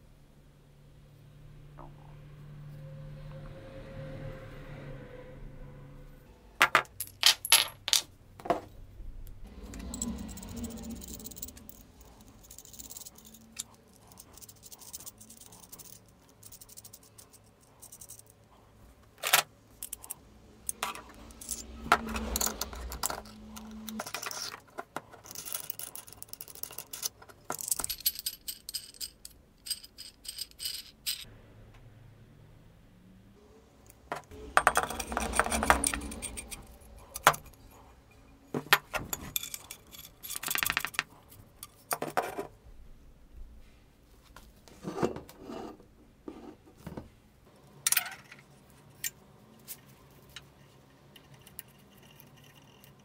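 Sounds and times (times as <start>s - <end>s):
metal parts clinking and rattling: 6.6s - 8.7s, 9.6s - 18.4s, 19.2s - 31.3s, 34.1s - 37.8s, 38.5s - 42.4s, 47.8s - 49.8s.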